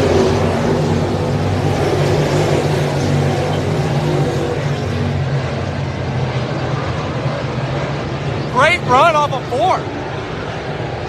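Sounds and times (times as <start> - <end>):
race car engines roaring: 0.0 - 11.0.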